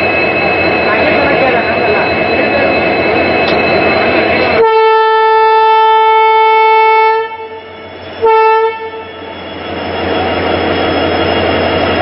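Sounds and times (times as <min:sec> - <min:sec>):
locomotive engine rumbling: 0:00.0 - 0:12.0
locomotive air horn: 0:04.6 - 0:09.2.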